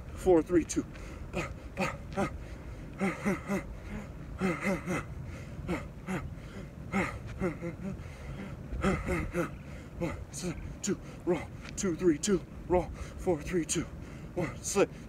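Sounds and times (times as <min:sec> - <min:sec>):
man grunting: 0:01.3 - 0:02.4, 0:03.0 - 0:05.1, 0:06.9 - 0:08.0, 0:08.8 - 0:10.6, 0:14.4 - 0:14.8.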